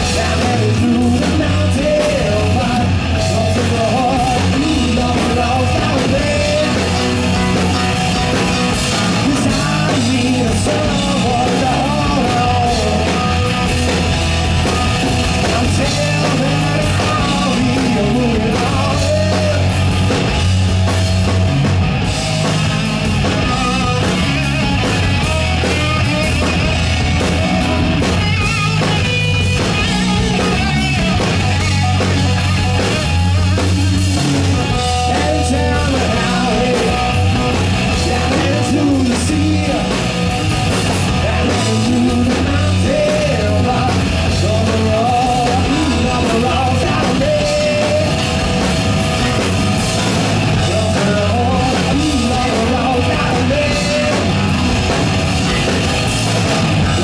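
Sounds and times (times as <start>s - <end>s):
person singing: 0.0s - 14.0s, 15.3s - 20.0s, 34.7s - 48.3s, 50.6s - 54.5s
live rock band playing: 0.0s - 57.0s.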